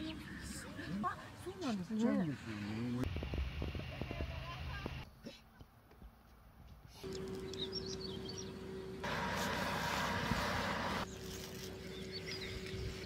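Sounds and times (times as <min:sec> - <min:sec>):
small birds chirping: 0:04.2 - 0:09.9, 0:11.0 - 0:13.0
steady low hum: 0:07.0 - 0:13.0.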